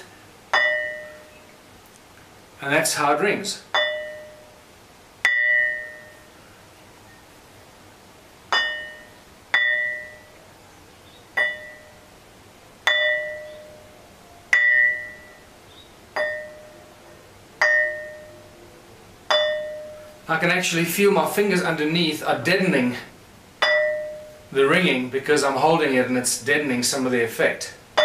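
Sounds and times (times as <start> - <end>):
ring stone struck bell-like: 0.6 - 1.3, 3.8 - 4.5, 5.3 - 6.2, 8.6 - 10.4, 11.4 - 12.0, 12.9 - 13.9, 14.5 - 15.4, 16.2 - 16.8, 17.6 - 18.5, 19.3 - 20.2, 23.6 - 24.5.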